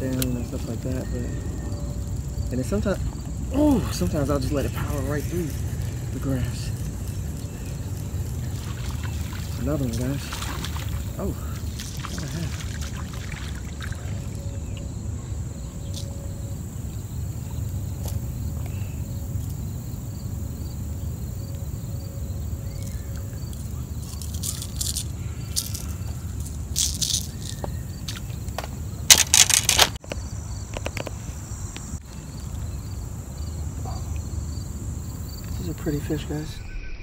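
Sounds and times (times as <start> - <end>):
low outdoor rumble: 0.0 - 29.1
insects trilling: 0.0 - 37.0
rustling and scraping: 24.0 - 31.4
loud short rustling burst: 29.1 - 30.0.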